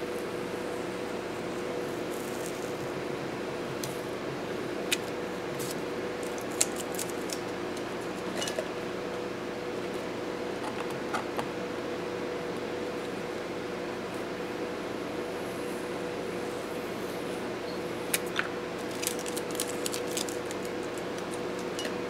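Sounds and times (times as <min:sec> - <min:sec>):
steady hum: 0:00.0 - 0:22.0
tape peeling off paper: 0:05.0 - 0:07.6, 0:18.1 - 0:21.4.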